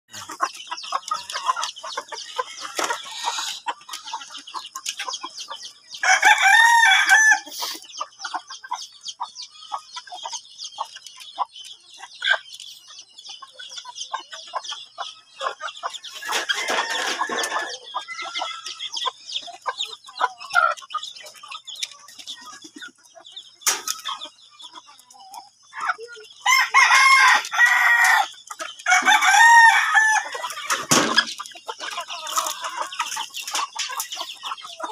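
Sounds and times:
chickens clucking: 0:00.1 - 0:34.9
rooster crowing: 0:06.0 - 0:07.4, 0:26.5 - 0:28.3, 0:28.9 - 0:30.5.

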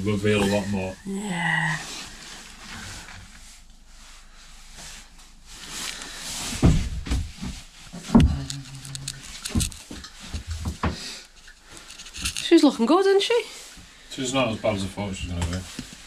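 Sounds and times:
heavy thumps: 0:06.5 - 0:11.1.

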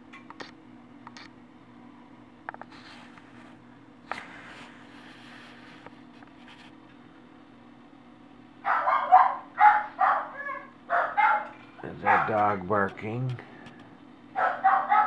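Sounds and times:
low steady hum: 0:00.0 - 0:15.0
dog barking: 0:08.6 - 0:12.5, 0:14.4 - 0:15.0.

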